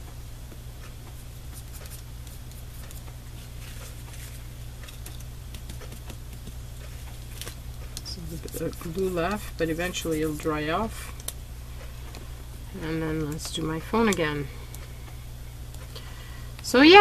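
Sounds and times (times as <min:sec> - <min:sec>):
low electrical hum: 0:00.0 - 0:17.0
paper clicks and taps: 0:03.8 - 0:10.4.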